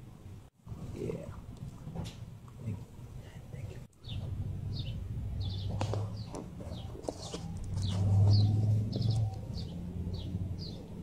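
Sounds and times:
small birds chirping: 3.6s - 11.0s.

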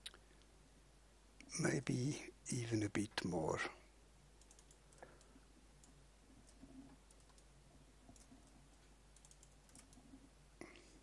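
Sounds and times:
faint clicks: 4.4s - 7.5s, 8.1s - 10.8s.

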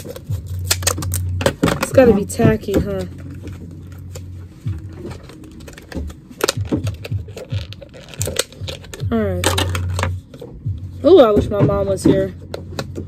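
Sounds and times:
plastic packaging clicks and rustles: 0.0s - 10.5s.

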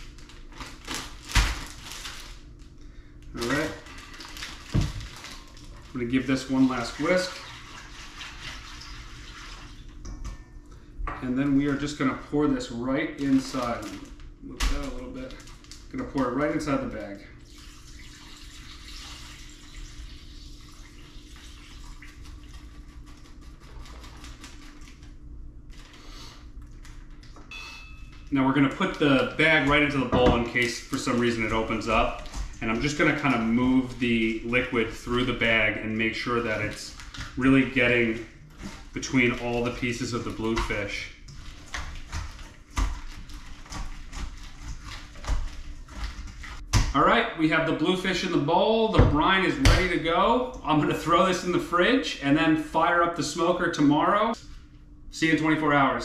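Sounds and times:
liquid pouring into plastic bag: 0.0s - 10.0s, 13.2s - 27.4s, 28.4s - 46.6s.

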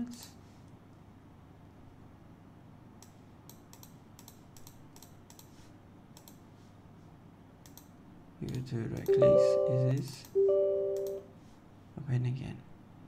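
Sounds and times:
keyboard and mouse clicking: 3.0s - 5.5s, 6.2s - 6.4s, 7.6s - 7.9s, 11.0s - 11.2s.

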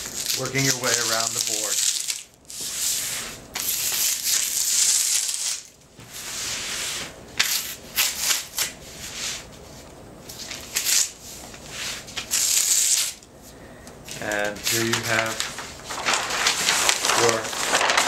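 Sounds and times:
paper crackling: 0.0s - 2.7s, 3.6s - 5.8s, 10.3s - 13.2s, 14.1s - 18.0s
paper tearing off board: 11.8s - 13.2s, 14.2s - 18.0s.

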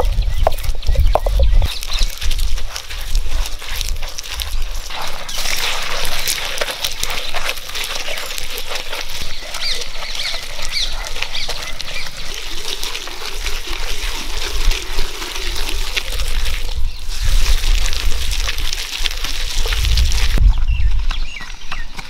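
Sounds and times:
stone grinding on stone: 0.0s - 16.4s.

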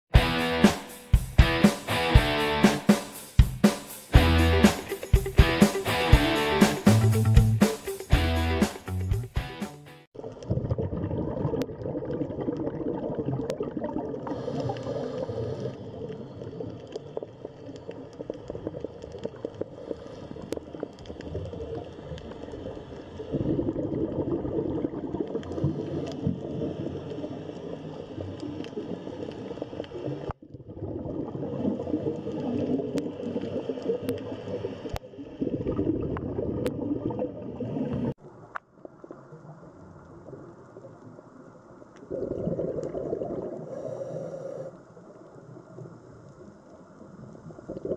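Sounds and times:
underwater gurgling and bubbling: 10.2s - 47.9s.

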